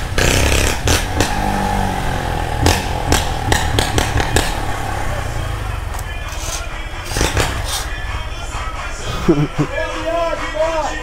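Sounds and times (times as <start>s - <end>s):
motorcycle running at low speed: 0.0s - 6.3s
sharp exhaust cracks: 0.0s - 8.0s.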